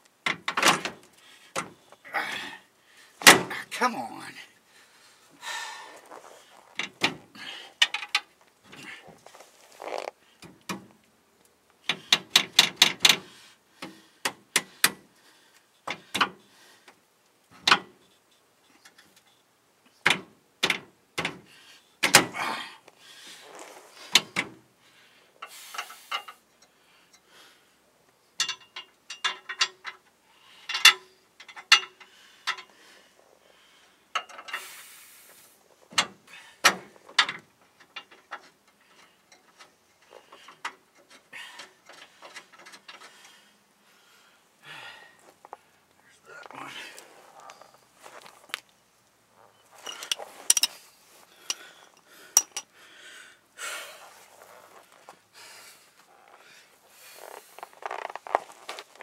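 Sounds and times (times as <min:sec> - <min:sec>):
metal clinks: 0:49.7 - 0:50.8, 0:51.4 - 0:52.7.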